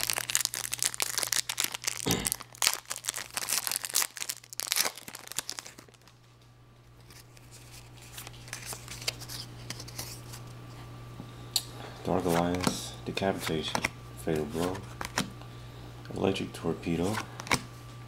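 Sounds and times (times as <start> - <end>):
foil pack tearing and crinkling: 0.0 - 6.2.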